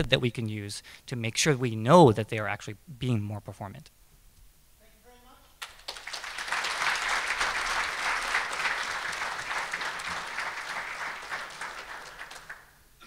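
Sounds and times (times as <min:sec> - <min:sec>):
audience applauding: 0:05.6 - 0:12.8.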